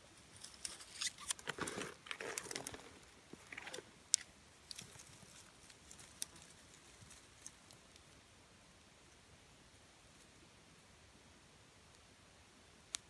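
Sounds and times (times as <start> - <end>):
dry twigs rustling and crackling: 0.2 - 8.2.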